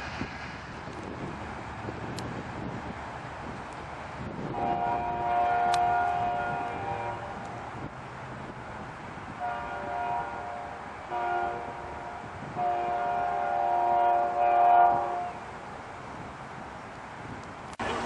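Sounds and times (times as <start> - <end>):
train air horn blasts: 4.5 - 7.6, 9.4 - 15.4.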